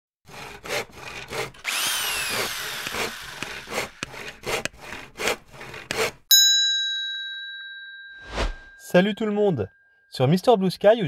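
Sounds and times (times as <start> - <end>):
saw strokes through wood: 0.3 - 6.3
power tool whining: 0.6 - 6.0.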